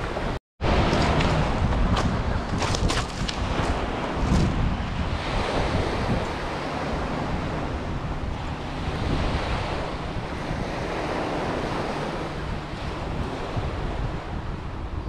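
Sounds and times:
waves washing on shingle beach: 0.0 - 14.6
wind buffeting microphone: 0.0 - 15.0.

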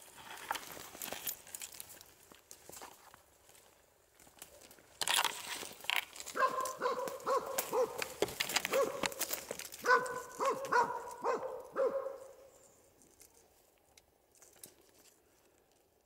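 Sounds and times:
rustling and handling noise: 0.0 - 16.0
dog barking: 6.4 - 8.1, 8.7 - 9.2, 9.8 - 12.5.

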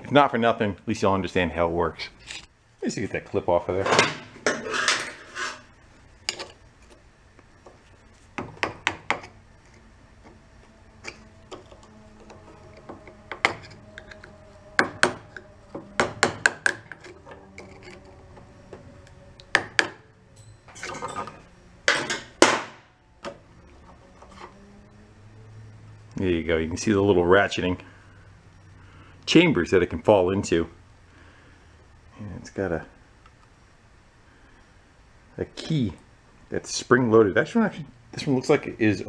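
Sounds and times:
metal tools clicking and clinking: 20.4 - 22.3.

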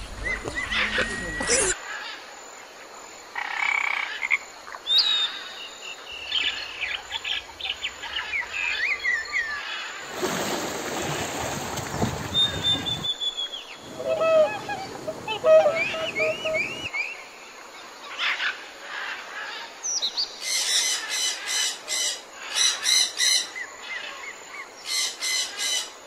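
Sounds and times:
sliding whistled calls: 0.2 - 1.8, 12.1 - 17.2
bird chirps: 12.3 - 17.3.

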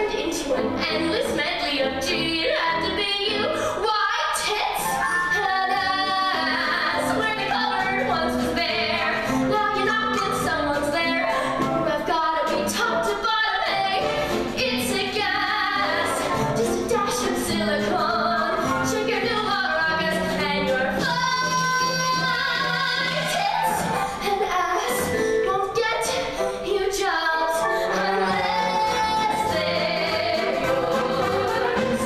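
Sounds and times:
woman singing show tune: 0.0 - 32.0
live band playing: 11.0 - 24.1.

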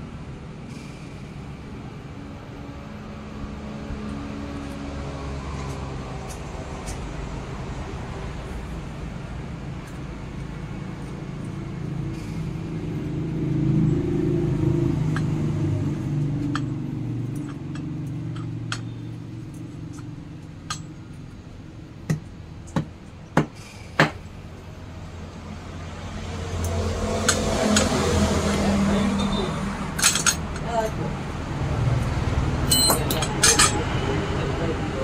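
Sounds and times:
sharp metal knocks: 22.0 - 24.3, 29.9 - 30.7.

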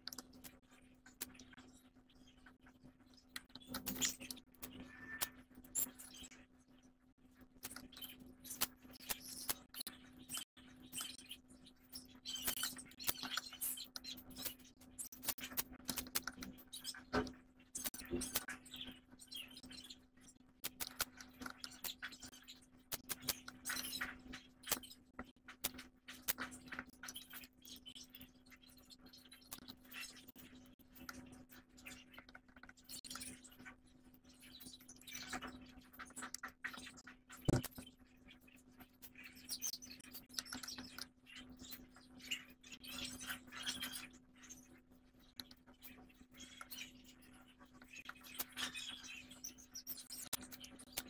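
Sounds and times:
birds chirping: 0.0 - 7.0, 15.9 - 25.0
light clicks and scratches: 0.0 - 51.0.

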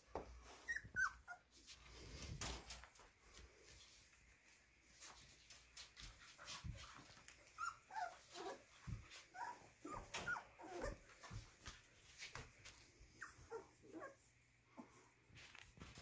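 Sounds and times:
puppies yipping and whimpering: 0.5 - 1.6, 7.4 - 11.5, 13.1 - 14.2.

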